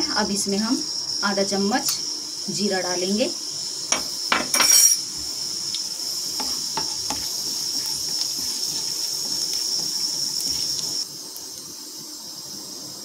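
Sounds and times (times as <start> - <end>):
seeds sizzling in hot oil: 0.0 - 13.0
spatula stirring: 6.0 - 11.1.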